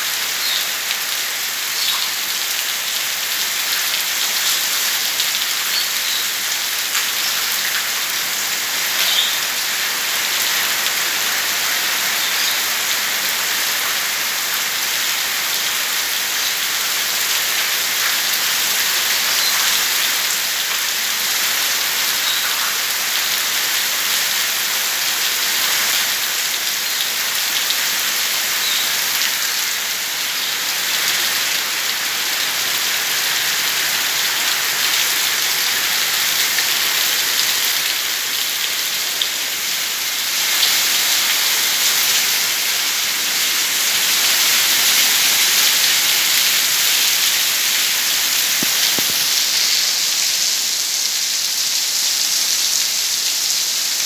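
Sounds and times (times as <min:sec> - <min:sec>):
heavy rain on roofs and paving: 0:00.0 - 0:54.0.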